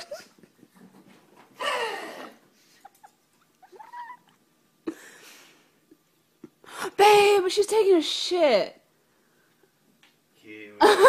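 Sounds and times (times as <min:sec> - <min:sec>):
dog whining: 0:02.8 - 0:04.4.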